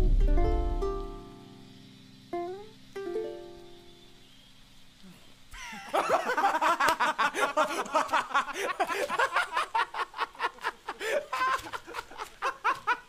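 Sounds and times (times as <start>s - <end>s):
men laughing hysterically: 5.6s - 13.0s.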